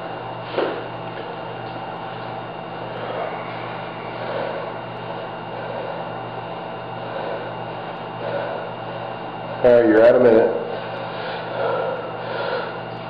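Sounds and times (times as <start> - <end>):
steady mechanical hum: 0.0 - 13.0
man breathing hard: 0.4 - 0.9, 2.7 - 9.6, 10.6 - 13.0.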